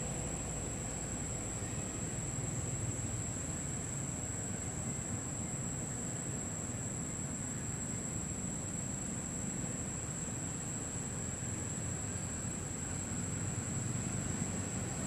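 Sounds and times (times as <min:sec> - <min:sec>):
constant high-pitched whine: 0:00.0 - 0:15.0.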